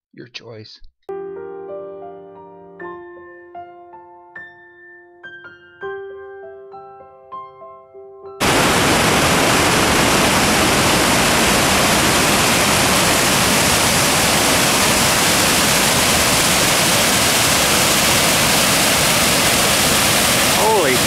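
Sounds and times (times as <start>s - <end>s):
torrent rushing roar: 8.4s - 21.0s.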